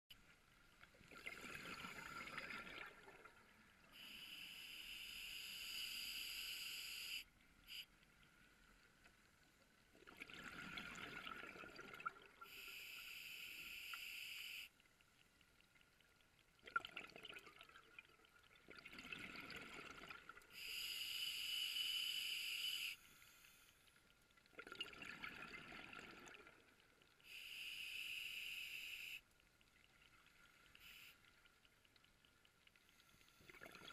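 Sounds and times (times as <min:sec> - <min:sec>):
exhaled bubbles rushing: 0:01.0 - 0:03.4, 0:10.0 - 0:12.4.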